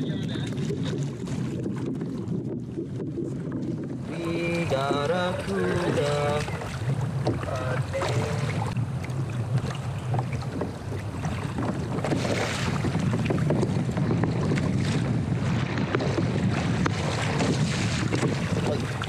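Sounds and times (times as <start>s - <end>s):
water sloshing against hull: 0.0s - 19.0s
wind buffeting microphone: 0.0s - 19.0s.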